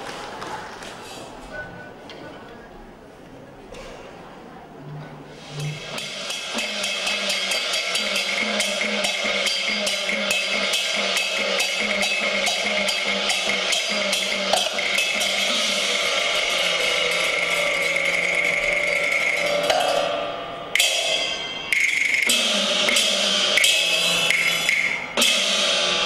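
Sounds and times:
gongs and cymbals ringing: 5.4s - 26.0s
rapid percussion strikes: 5.4s - 26.0s.

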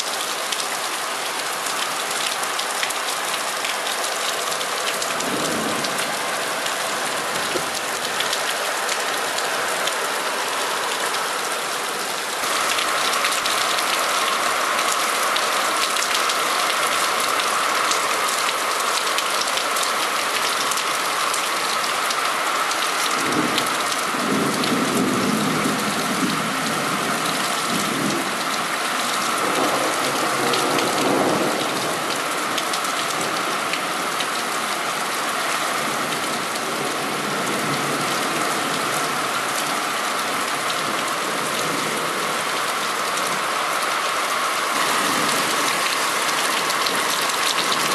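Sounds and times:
heavy rain pouring: 0.0s - 47.9s.

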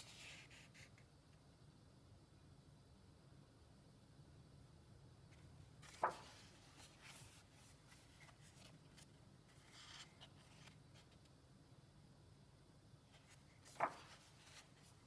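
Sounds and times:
paper rustling and sliding: 5.3s - 11.3s, 13.1s - 15.0s
paper page flapping: 5.8s - 11.3s, 13.2s - 15.0s.

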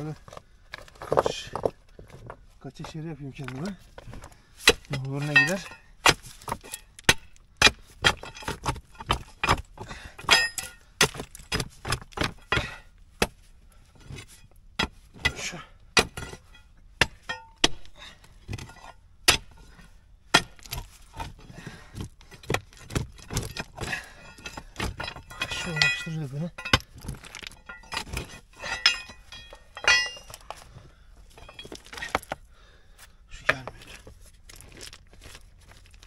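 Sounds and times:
stones clattering: 0.0s - 12.6s, 20.3s - 32.5s, 33.4s - 36.0s
pickaxe striking stony ground: 2.9s - 30.7s, 31.3s - 32.5s, 33.4s - 36.0s.

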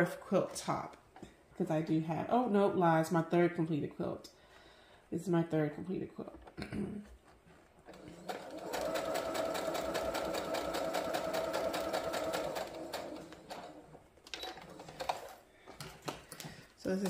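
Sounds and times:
sewing machine stitching: 7.8s - 15.4s.

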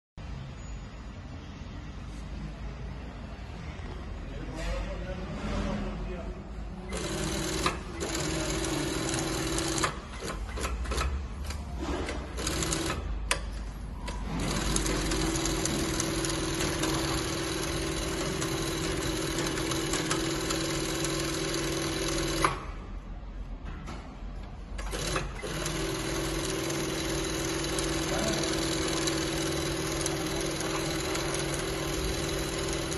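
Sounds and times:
sewing machine humming: 6.9s - 13.3s, 14.1s - 22.8s, 24.8s - 32.9s.

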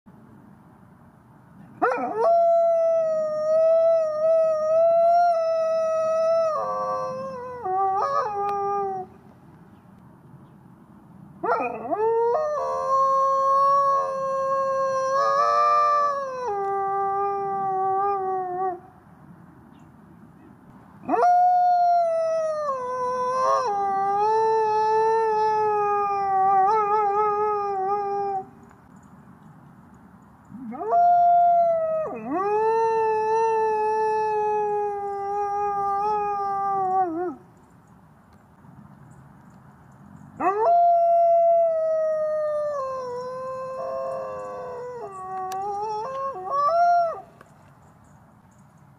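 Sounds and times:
wolf howling: 40.4s - 47.3s.

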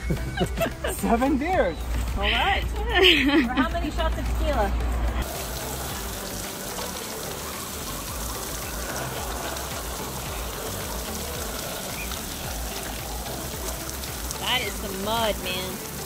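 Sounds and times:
shower water spraying and splashing: 5.2s - 16.0s.

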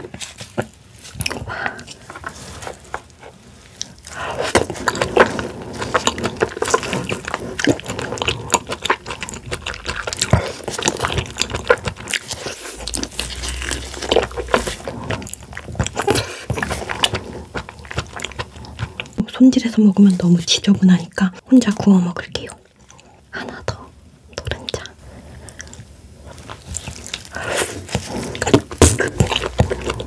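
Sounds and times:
crab meat chewing and sucking: 0.0s - 20.4s, 22.4s - 30.0s.

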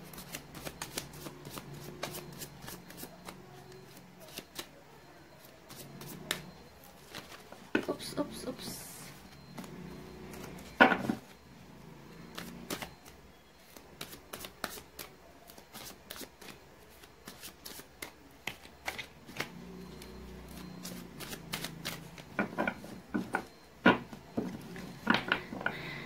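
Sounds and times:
cards being shuffled by hand: 0.0s - 4.7s, 12.3s - 12.9s, 13.6s - 19.6s, 20.5s - 22.9s.

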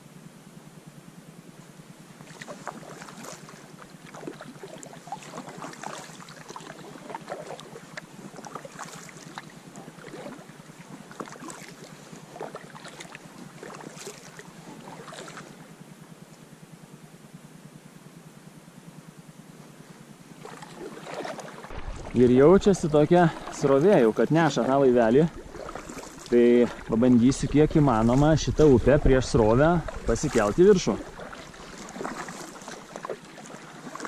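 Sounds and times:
paddle splashing water: 2.2s - 15.8s, 20.3s - 34.0s
steady low hum: 21.5s - 33.5s.

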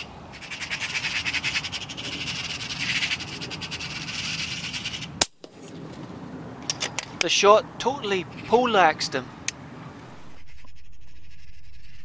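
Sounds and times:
magpies chattering: 0.0s - 5.1s, 10.3s - 12.0s.

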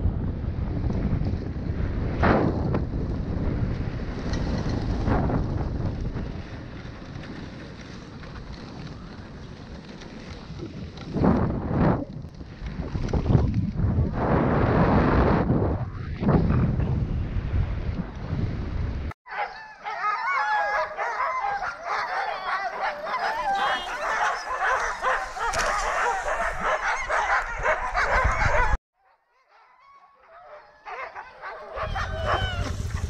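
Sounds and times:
wind rumble on microphone: 0.0s - 19.2s, 21.4s - 28.8s, 31.7s - 33.0s
dogs barking and yipping: 19.3s - 33.0s.

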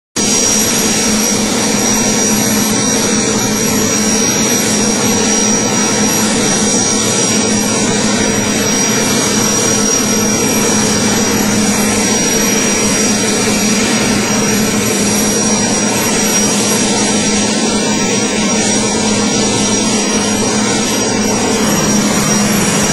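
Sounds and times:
helicopter engines and rotor: 0.2s - 22.9s
helicopter turbine whine: 0.2s - 22.9s.

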